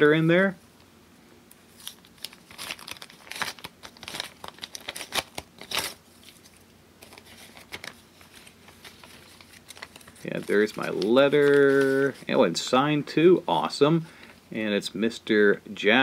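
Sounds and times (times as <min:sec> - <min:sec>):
paper rustling: 0:01.7 - 0:12.4
envelope tearing: 0:01.8 - 0:12.3.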